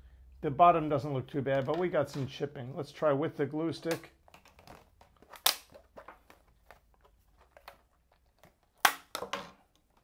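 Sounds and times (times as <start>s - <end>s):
sharp crack: 5.4s - 5.8s, 8.8s - 9.2s.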